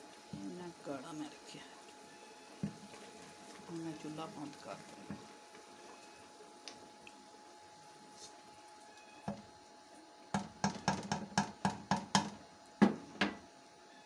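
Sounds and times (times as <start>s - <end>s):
wooden spoon knocking on pot: 10.3s - 13.4s.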